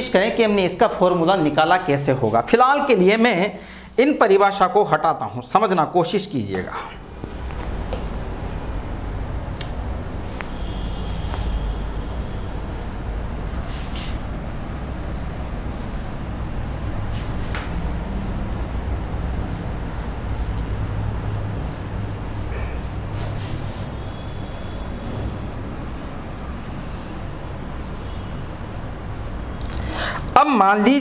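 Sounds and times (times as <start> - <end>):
hand rubbing on touchscreen board: 7.1 - 29.5.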